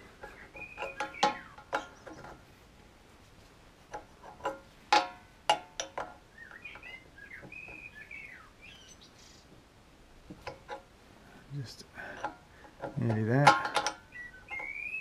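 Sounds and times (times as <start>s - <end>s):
spanner clinking on metal nuts: 0.0s - 2.4s, 3.9s - 7.8s, 10.3s - 10.9s, 12.0s - 15.0s
small bird chirping: 0.2s - 2.3s, 6.3s - 9.5s, 14.0s - 15.0s.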